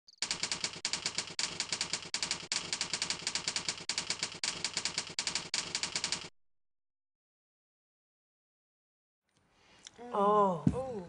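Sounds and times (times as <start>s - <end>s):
typewriter keys clacking: 0.2s - 6.3s.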